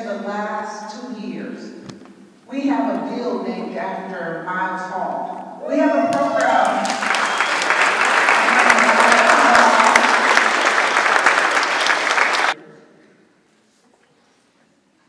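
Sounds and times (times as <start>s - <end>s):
audience applauding: 6.1s - 12.6s.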